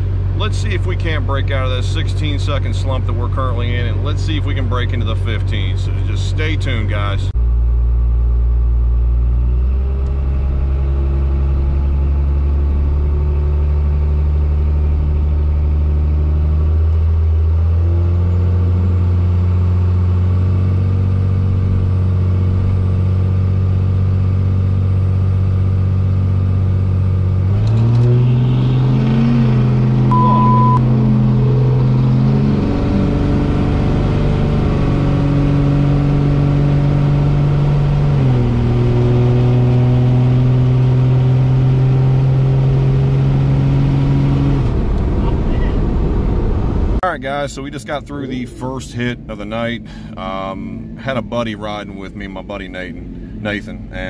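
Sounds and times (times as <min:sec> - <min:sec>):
diesel truck engine from inside cab: 0:00.0 - 0:54.0
short beep: 0:30.1 - 0:30.8.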